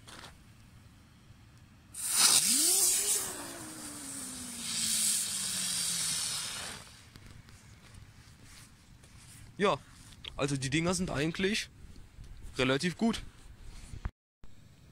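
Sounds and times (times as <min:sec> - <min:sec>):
firework spinner spraying hiss: 0:02.0 - 0:07.7.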